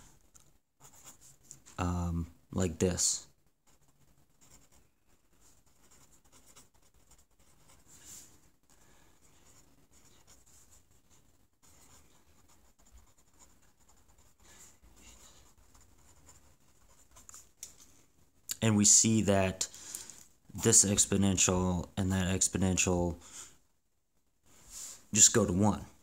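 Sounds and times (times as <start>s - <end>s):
pencil scratching on paper: 0.8s - 1.4s, 3.7s - 17.5s.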